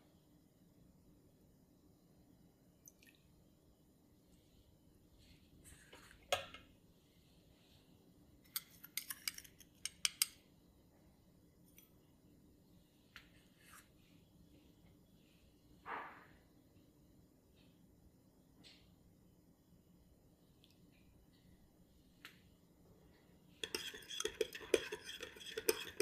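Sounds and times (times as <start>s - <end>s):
metal spoon clinking glass bowls: 23.6s - 26.0s.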